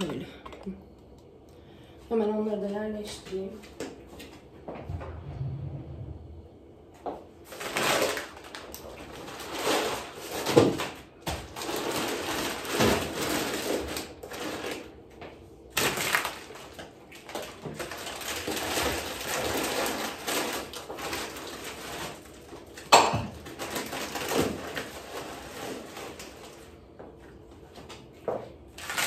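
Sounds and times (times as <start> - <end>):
plastic packets crinkling: 7.4 - 15.1, 15.7 - 26.9, 28.7 - 29.0.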